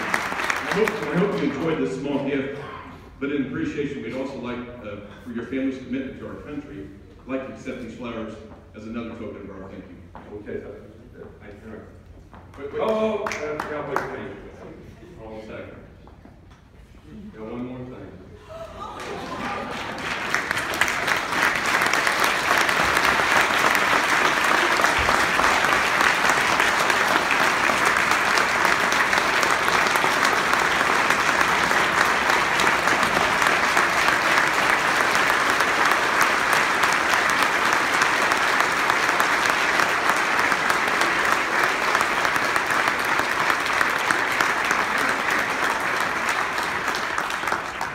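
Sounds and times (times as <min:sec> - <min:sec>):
large audience applauding: 0:00.0 - 0:02.3, 0:12.8 - 0:14.2, 0:18.8 - 0:47.9.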